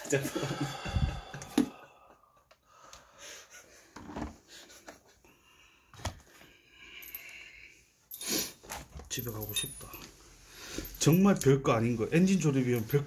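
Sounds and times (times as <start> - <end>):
faint breathing-like sounds: 0.0 - 3.9, 5.2 - 8.6.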